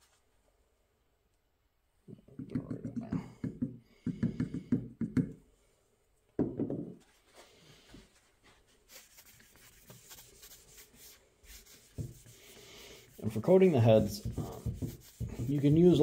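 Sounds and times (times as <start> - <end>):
paper towel scrubbing metal: 8.4 - 16.0.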